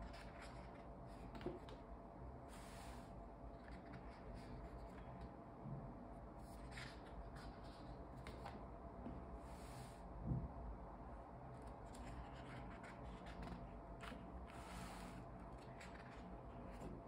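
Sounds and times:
paper pages rustling: 6.5s - 8.6s.

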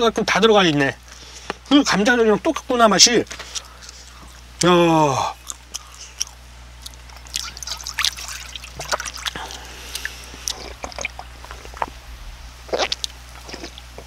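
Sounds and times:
liquid trickling into metal bowl: 7.4s - 9.4s.

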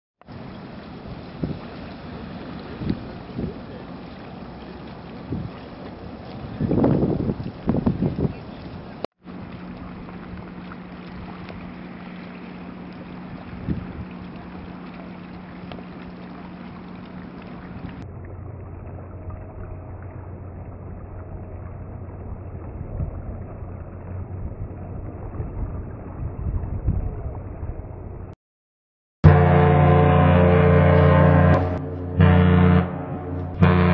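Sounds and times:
wind buffeting microphone: 0.3s - 28.3s
low hum of ship machinery: 8.4s - 28.3s, 29.3s - 33.9s.

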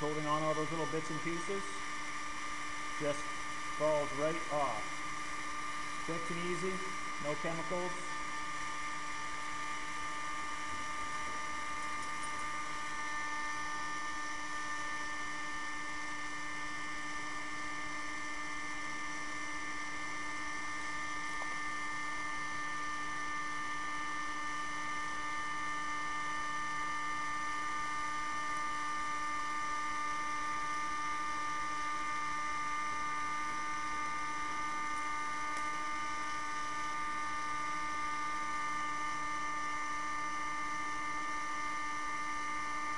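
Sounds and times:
heat gun whining and hissing: 0.0s - 27.7s.

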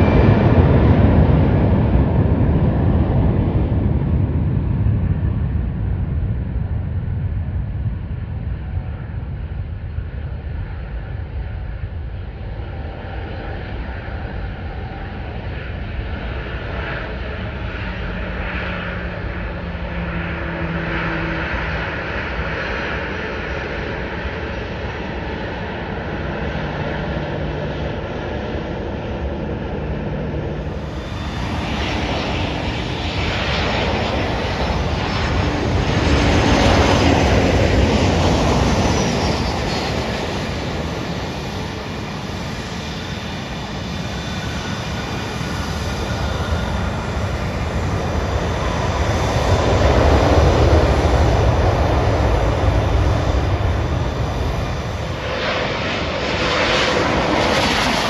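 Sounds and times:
distant jet rumble: 0.0s - 58.0s
jet airliner landing: 0.0s - 58.0s.

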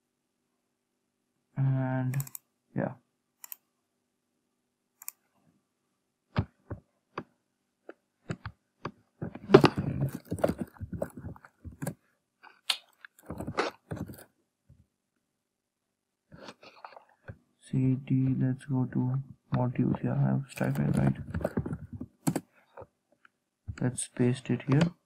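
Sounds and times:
computer keyboard typing: 10.1s - 12.0s, 20.6s - 22.5s.

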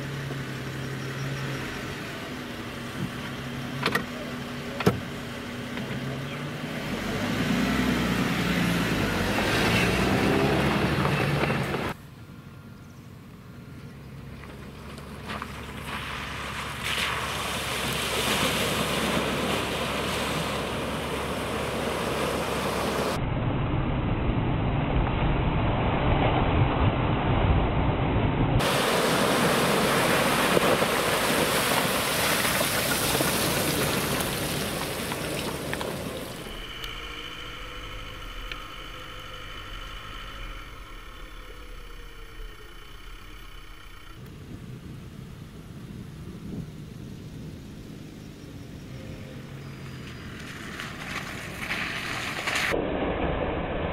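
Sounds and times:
car engine running: 0.0s - 23.2s, 28.6s - 52.7s
water splashing: 14.8s - 23.2s, 28.6s - 44.2s
wind noise: 15.6s - 53.9s
steady whine of held tones: 36.3s - 44.7s.

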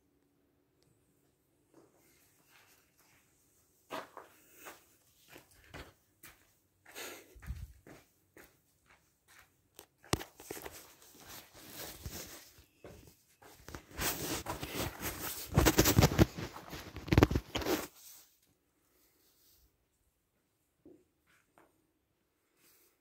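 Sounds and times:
footsteps: 1.7s - 17.9s
crunching and rustling: 13.8s - 17.9s.

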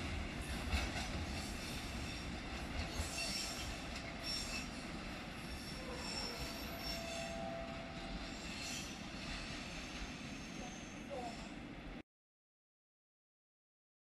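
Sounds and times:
train wheels rumbling on track: 0.0s - 12.0s
high-pitched wheel squeals: 5.5s - 9.0s.

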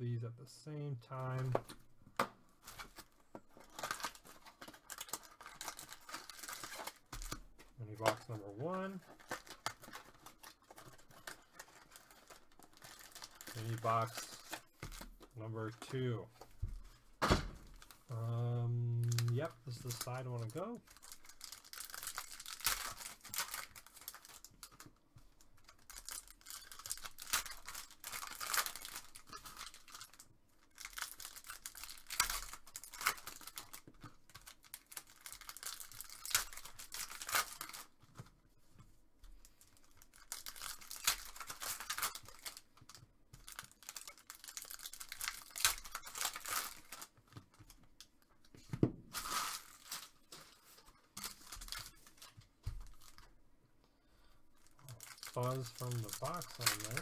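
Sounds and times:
plastic wrappers tearing and crinkling: 2.6s - 15.2s, 17.6s - 38.3s, 39.4s - 48.2s, 49.1s - 53.3s, 54.6s - 57.0s.

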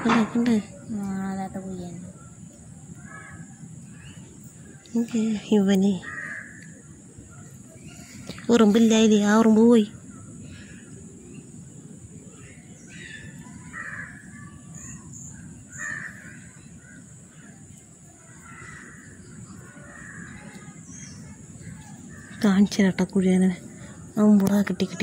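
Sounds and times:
faint high hiss: 0.0s - 25.0s
crows cawing: 3.0s - 3.6s, 6.0s - 6.8s, 13.0s - 14.6s, 15.7s - 17.5s, 18.3s - 20.7s, 22.1s - 22.6s.

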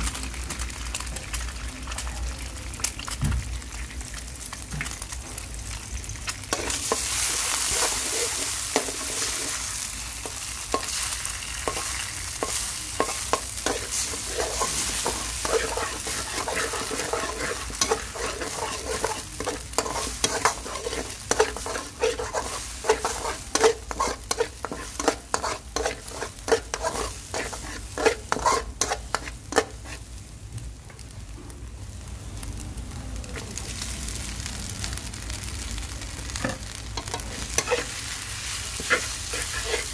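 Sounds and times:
eggs sizzling in oil: 0.0s - 39.9s
spatula scraping a wok: 6.5s - 30.1s, 36.4s - 39.9s.

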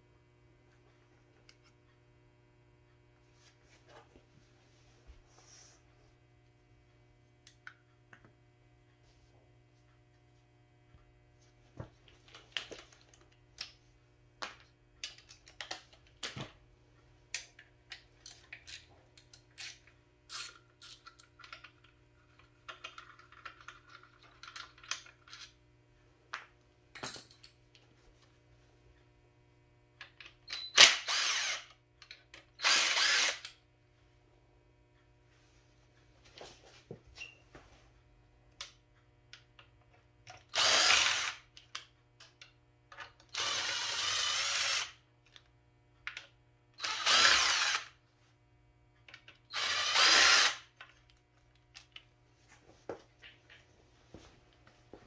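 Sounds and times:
cordless drill spinning: 30.5s - 31.8s, 32.6s - 33.5s, 40.5s - 41.4s, 43.3s - 45.0s, 46.8s - 47.9s, 49.5s - 50.7s.

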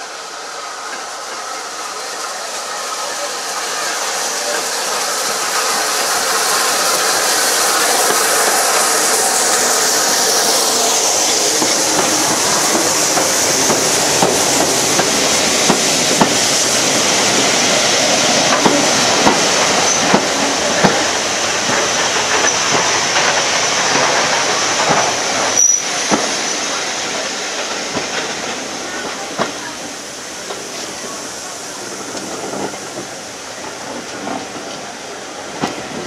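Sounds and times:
train running on track: 0.0s - 36.0s
wheels clicking over rail joints: 5.2s - 26.3s.

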